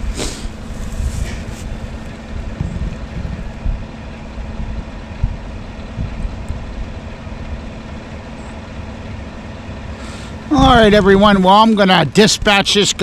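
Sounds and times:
vehicle engine idling: 0.0 - 13.0
dull thumps: 10.5 - 11.3.

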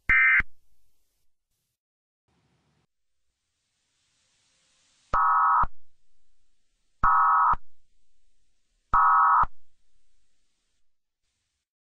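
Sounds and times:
buzzing electronic data bursts: 5.2 - 5.7.

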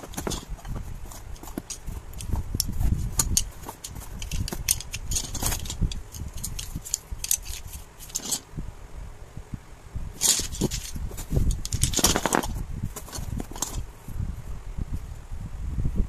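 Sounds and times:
wooden sticks clacking: 0.0 - 8.5, 10.2 - 13.8.

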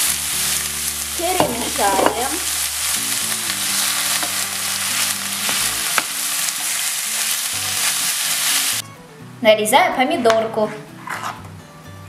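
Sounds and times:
meat sizzling in a frying pan: 0.0 - 8.8.

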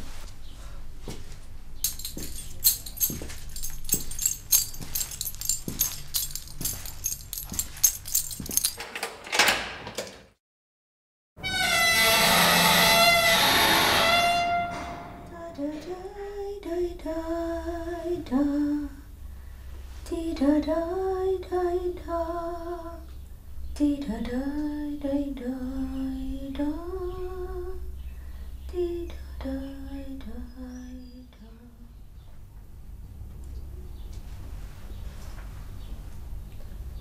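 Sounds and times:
low background hum: 0.0 - 9.2, 14.7 - 37.0
woman humming a slow melody: 23.8 - 27.9, 28.6 - 32.0.

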